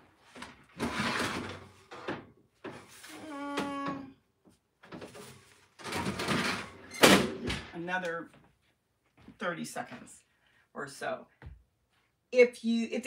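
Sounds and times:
metal oven rack scraping: 0:00.8 - 0:02.1, 0:05.2 - 0:07.0.

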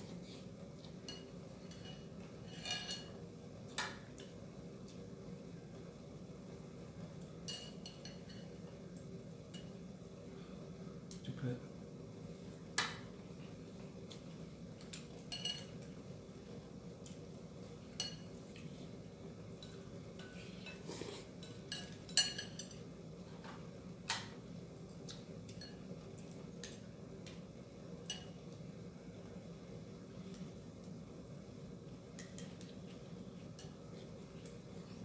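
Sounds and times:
steady low hum: 0:00.0 - 0:35.0
chopsticks clinking against bowls: 0:14.9 - 0:15.8, 0:19.6 - 0:22.9.

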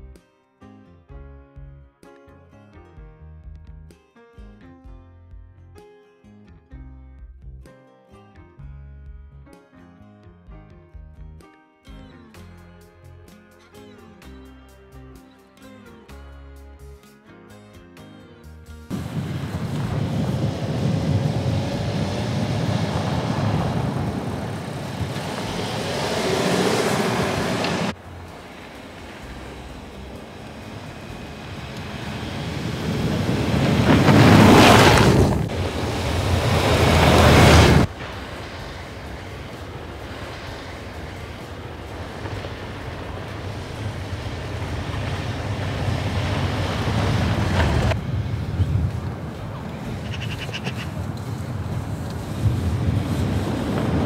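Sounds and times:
car driving by: 0:18.9 - 0:54.0.

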